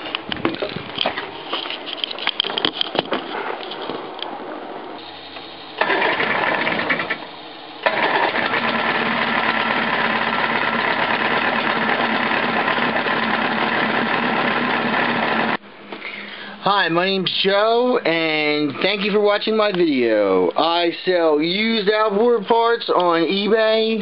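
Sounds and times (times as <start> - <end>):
knocks and rustles: 0.0 - 4.3
electric starter turning motor: 5.0 - 15.6.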